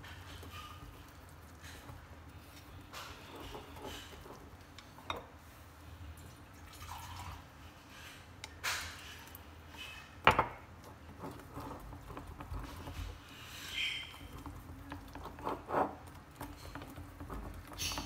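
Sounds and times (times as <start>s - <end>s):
chopsticks stirring batter: 0.0s - 5.3s, 7.6s - 18.0s.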